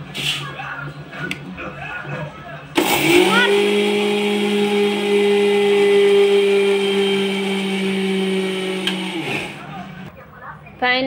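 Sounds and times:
mixer grinder grinding seeds: 0:02.8 - 0:09.7.

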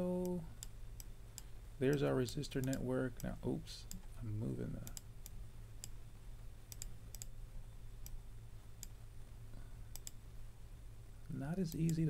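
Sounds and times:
faint low hum: 0:00.0 - 0:12.0
mouse buttons clicking: 0:06.7 - 0:07.4, 0:09.9 - 0:10.2.

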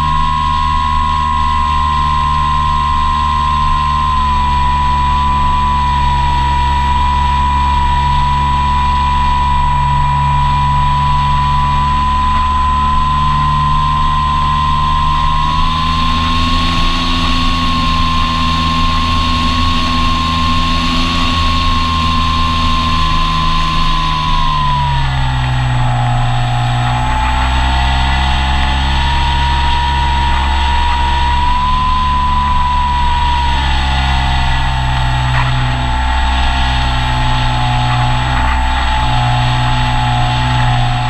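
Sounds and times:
model airplane motor whining: 0:00.0 - 0:41.0.

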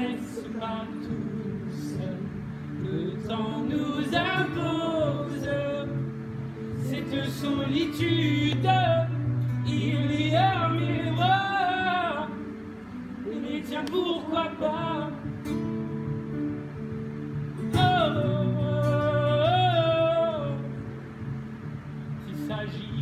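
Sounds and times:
person singing: 0:00.0 - 0:06.1, 0:06.7 - 0:12.4, 0:17.7 - 0:20.9
guitar accompaniment: 0:00.0 - 0:23.0.

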